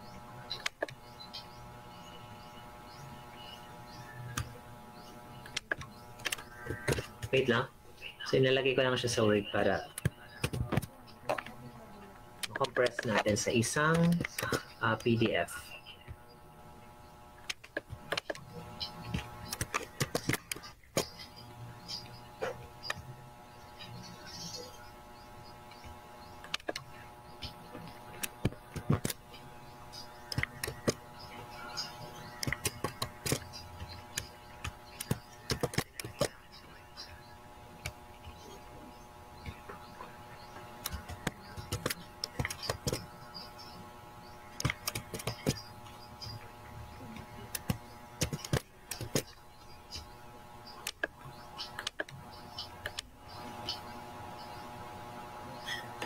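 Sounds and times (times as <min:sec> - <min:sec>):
steady hum: 0:00.0 - 0:56.0
computer keyboard typing: 0:32.4 - 0:36.4, 0:40.8 - 0:43.1, 0:44.6 - 0:45.7.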